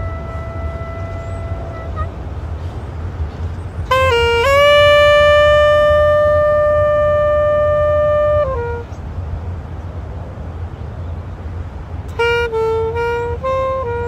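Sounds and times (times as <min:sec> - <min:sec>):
low clarinet playing: 0:00.0 - 0:02.3, 0:03.9 - 0:09.0, 0:12.1 - 0:14.0
steady low rumble: 0:00.0 - 0:14.0.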